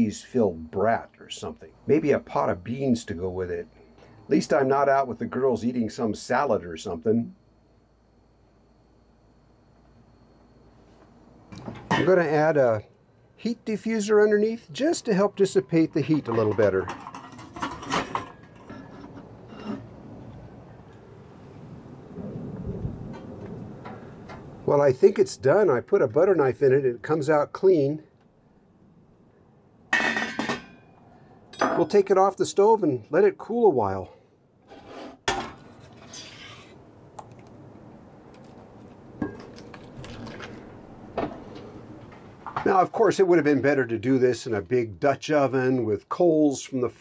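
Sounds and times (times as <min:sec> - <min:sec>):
faint steady background: 0:00.0 - 0:47.0
metal pot clicking and clattering: 0:16.2 - 0:18.9.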